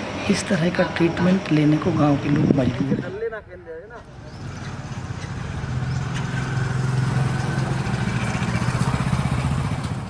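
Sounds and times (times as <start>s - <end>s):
motorcycle passing by: 4.2s - 10.0s.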